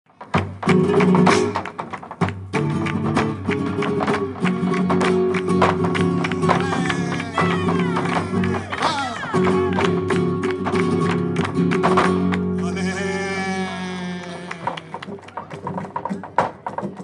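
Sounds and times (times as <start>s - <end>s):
hand clapping: 0.2s - 17.0s
guitar chords: 2.4s - 15.2s
person singing: 6.1s - 10.0s, 12.6s - 15.4s.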